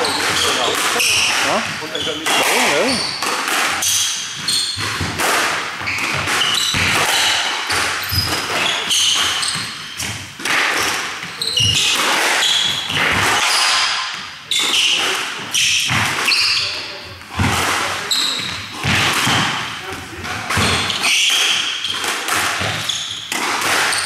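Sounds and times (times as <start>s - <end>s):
shoes squeaking on wooden floor: 0.0s - 24.0s
squash ball smacking: 0.0s - 24.0s.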